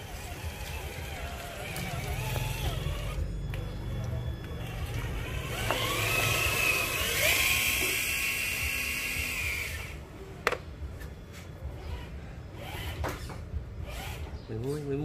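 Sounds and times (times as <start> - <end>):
electric motor whining: 0.0 - 10.0.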